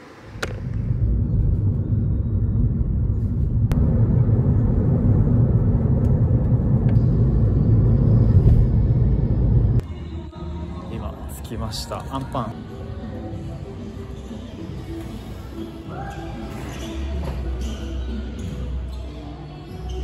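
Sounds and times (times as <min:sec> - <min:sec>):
car interior road rumble: 0:00.6 - 0:09.8.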